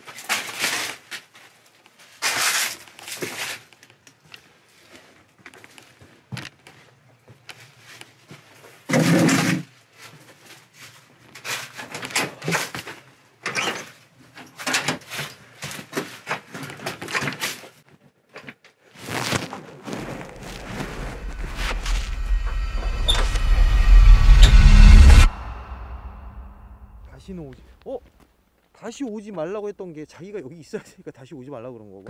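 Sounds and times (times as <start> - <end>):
low steady hum: 20.3 - 27.5
loud thump: 20.4 - 27.3.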